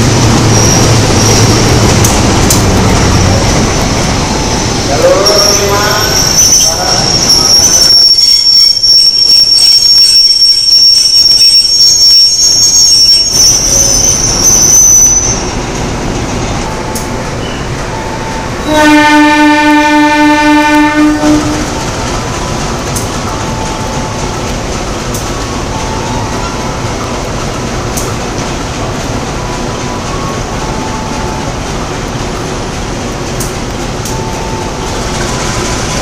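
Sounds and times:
moving train rumble: 0:00.0 - 0:36.0
train wheels squealing: 0:00.4 - 0:01.8, 0:04.3 - 0:15.6, 0:16.8 - 0:18.4
locomotive horn blast: 0:18.0 - 0:21.9.

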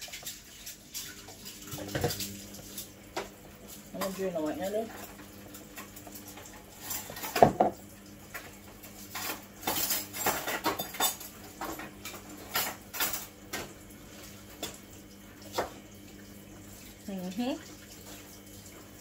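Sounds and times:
kitchen utensils clattering: 0:03.9 - 0:13.8.

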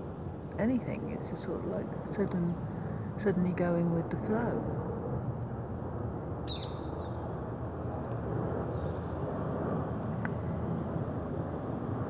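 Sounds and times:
distant city traffic rumble: 0:00.0 - 0:12.0
high bird chirp: 0:06.3 - 0:07.1.

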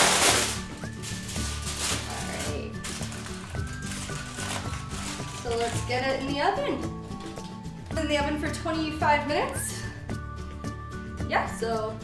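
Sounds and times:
aluminium foil crinkling: 0:00.0 - 0:06.3
background music with steady beat: 0:00.0 - 0:12.0.

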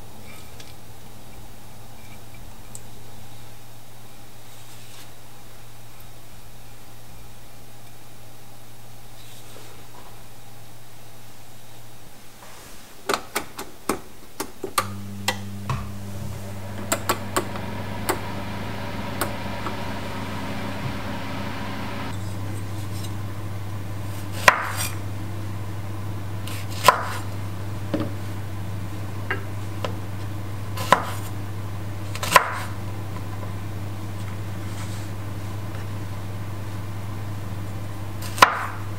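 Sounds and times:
steady low hum: 0:14.8 - 0:38.9.

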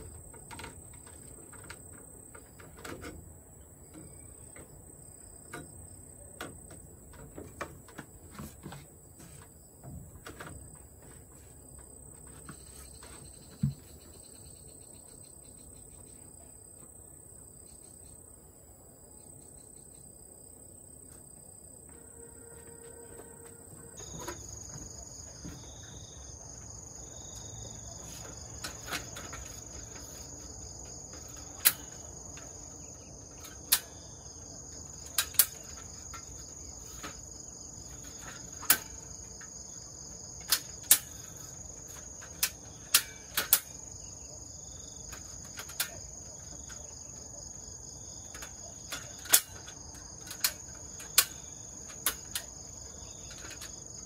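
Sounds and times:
insects droning: 0:00.0 - 0:54.0
metal ladder clicks and clacks: 0:27.4 - 0:44.0, 0:45.0 - 0:47.3, 0:48.1 - 0:54.0.

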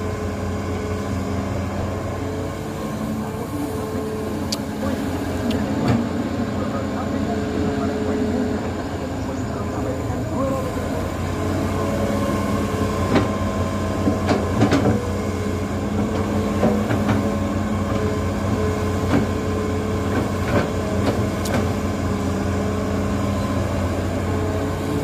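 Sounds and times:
excavator diesel engine running: 0:00.0 - 0:25.0.

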